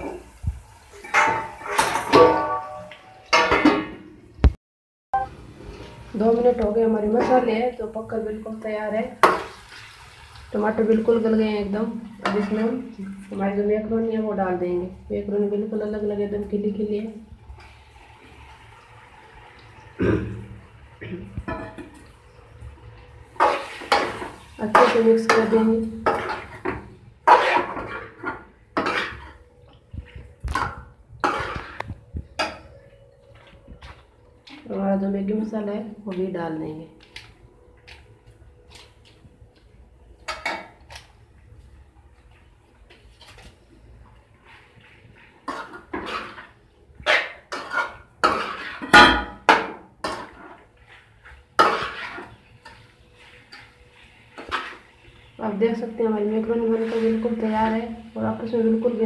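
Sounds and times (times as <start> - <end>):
metal spoon scraping a metal pan: 12.2 - 13.2, 23.4 - 29.4, 30.5 - 32.7, 45.4 - 55.4, 56.5 - 57.8.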